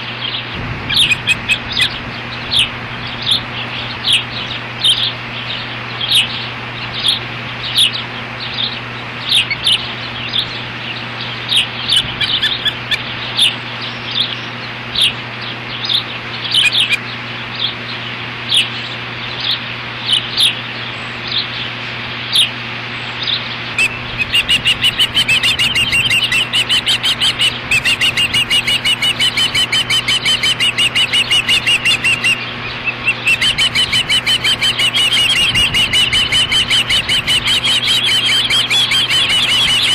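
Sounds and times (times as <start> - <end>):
osprey high chirps: 0.0 - 8.0, 16.4 - 17.0, 23.8 - 39.9
steady low hum: 0.0 - 39.9.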